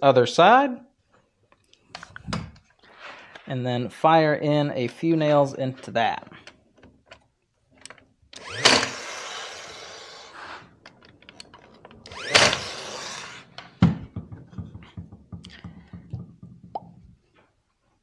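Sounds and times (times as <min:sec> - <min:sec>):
wooden knocks and thumps: 0:02.2 - 0:02.7, 0:13.6 - 0:17.5
nailer firing: 0:08.4 - 0:10.6, 0:12.0 - 0:14.2.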